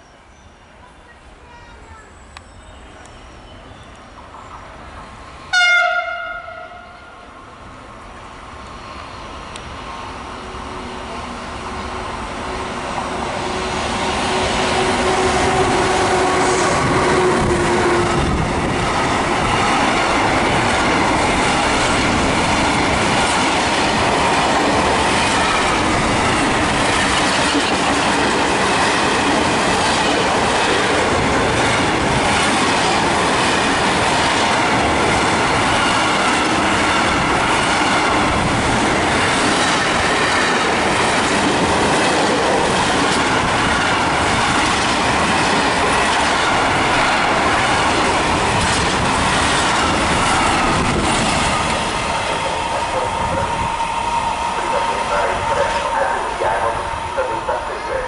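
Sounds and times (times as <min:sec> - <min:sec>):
train wheels clattering on rails: 0:13.8 - 0:52.7.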